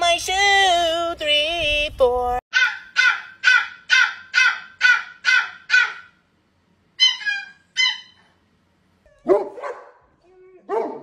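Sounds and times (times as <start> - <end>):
puppy yipping: 2.5 - 6.2, 7.0 - 8.4, 9.1 - 10.0
puppy crying and yelping: 2.6 - 6.2, 7.0 - 8.4, 9.0 - 9.8.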